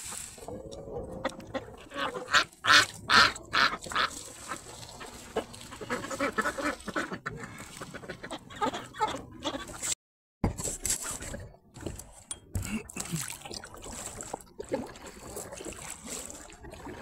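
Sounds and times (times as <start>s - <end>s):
ducks quacking: 0.4s - 10.0s.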